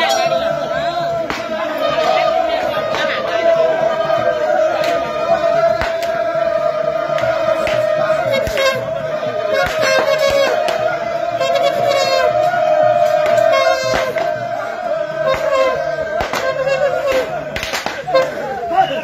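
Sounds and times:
pulsing low beat: 0.0 - 19.0
sharp percussion strikes: 15.2 - 18.6.

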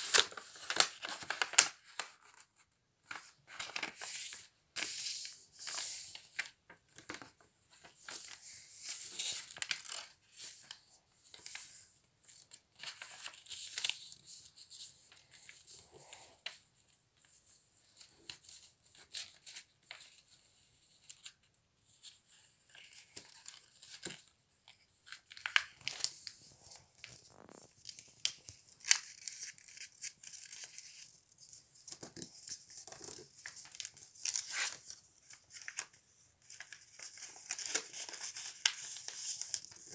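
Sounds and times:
fingertips stroking paper folds: 0.0 - 2.4
paper rustling and crinkling: 0.0 - 39.9.

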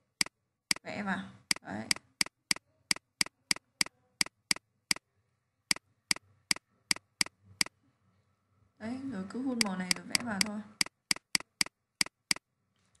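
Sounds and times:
computer mouse button clicking: 9.6 - 12.2.

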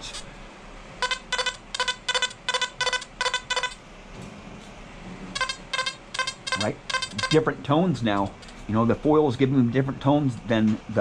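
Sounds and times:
metal detector beeps: 1.0 - 3.8, 5.4 - 7.5.

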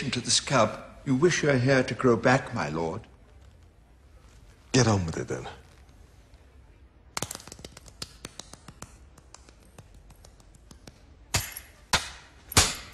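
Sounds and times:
hand slaps on bald scalp: 7.1 - 12.2.

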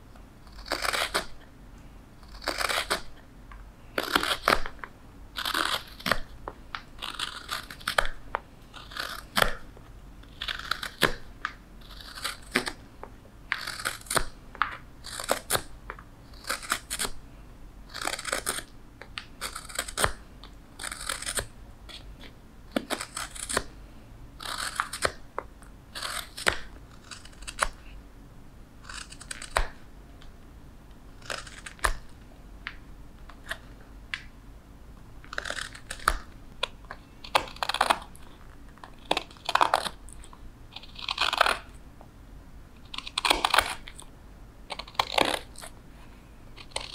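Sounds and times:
knife scraping wood: 0.4 - 1.4, 2.2 - 3.2, 4.0 - 4.7, 5.4 - 6.2, 7.0 - 8.1, 8.8 - 9.6, 20.8 - 23.7, 24.4 - 25.2, 25.9 - 27.8, 28.8 - 29.7.

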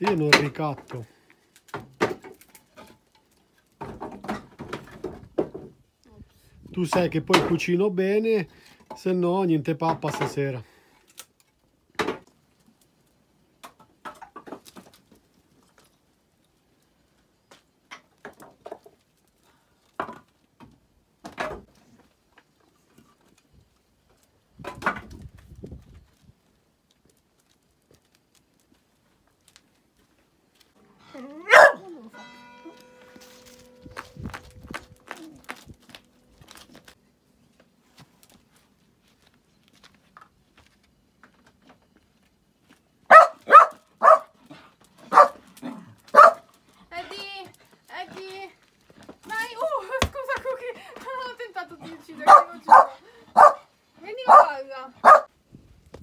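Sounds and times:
firewood logs knocking: 3.7 - 5.8, 13.6 - 15.2, 17.5 - 19.1, 24.6 - 25.8, 48.1 - 51.2
dog barking: 31.4 - 31.9, 43.1 - 44.4, 45.1 - 45.4, 46.1 - 46.5, 52.2 - 53.7, 54.3 - 55.3.

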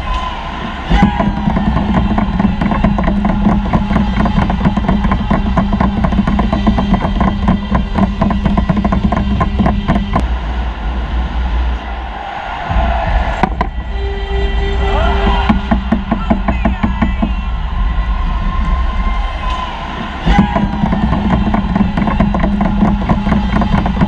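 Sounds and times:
fast loud drum beat: 0.9 - 10.3, 15.0 - 17.7, 20.2 - 24.0.

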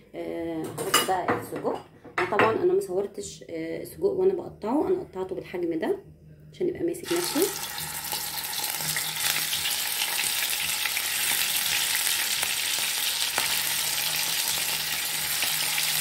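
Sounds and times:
sausage sizzling in oil: 7.0 - 16.0.

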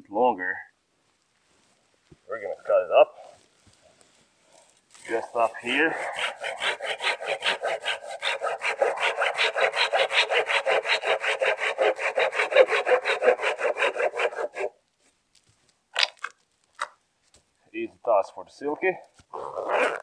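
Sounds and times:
folding saw cutting wooden pole: 5.0 - 14.8.

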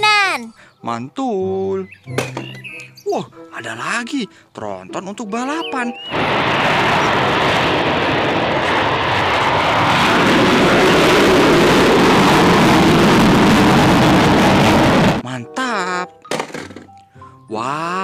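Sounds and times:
jet engines roaring: 6.0 - 15.2.

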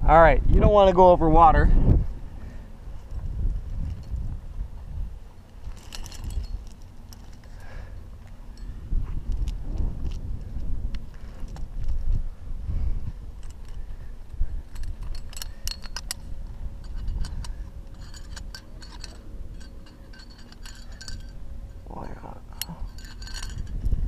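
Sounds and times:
metal climbing gear jingling: 3.0 - 4.3, 5.4 - 9.6, 13.4 - 24.0.

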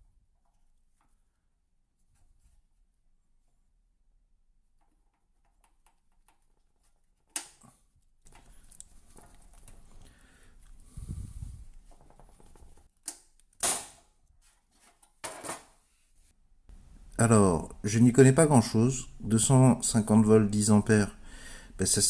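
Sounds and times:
scraping and rustling handling: 8.2 - 13.0, 14.4 - 16.3.

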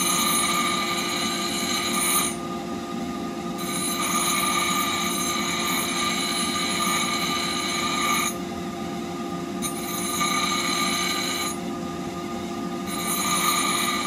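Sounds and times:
bench grinder running: 0.0 - 2.4, 3.6 - 8.4, 9.6 - 11.6, 12.8 - 14.0
high ringing blade grinding: 0.0 - 2.5, 3.6 - 8.4, 9.6 - 11.7, 12.8 - 14.0.

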